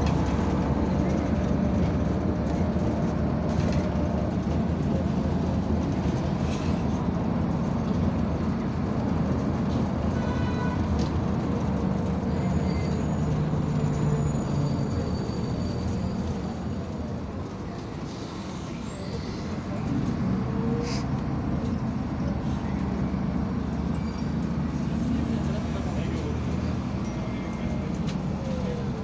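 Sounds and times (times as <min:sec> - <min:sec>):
bus body rattles: 0:00.0 - 0:29.0
bus engine drone: 0:00.0 - 0:29.0
road rumble: 0:00.0 - 0:29.0.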